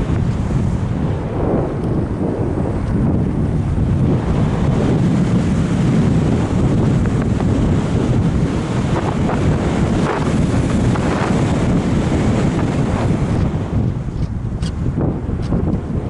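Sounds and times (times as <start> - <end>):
wind buffeting microphone: 0.0 - 16.0.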